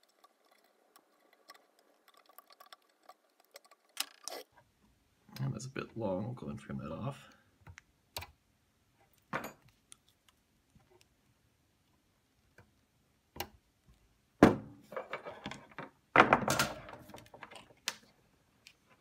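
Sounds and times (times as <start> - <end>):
loud knocks with rattling clatter: 16.1 - 17.1.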